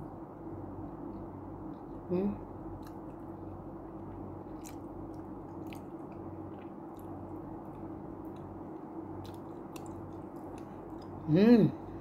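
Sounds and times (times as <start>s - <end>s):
steady low hum: 0.0s - 12.0s
person chewing food: 2.8s - 11.2s.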